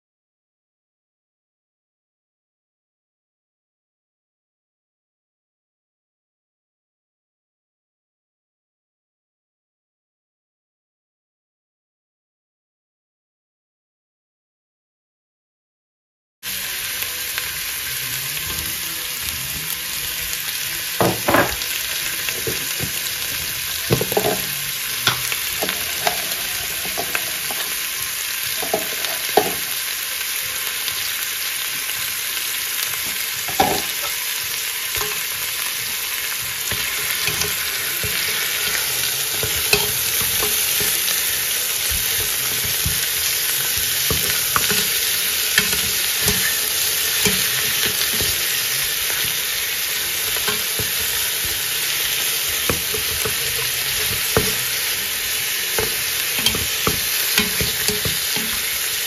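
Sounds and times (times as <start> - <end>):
meat and onion sizzling: 16.5 - 59.0
metal spoon knocking pot: 21.0 - 21.6, 23.9 - 24.5.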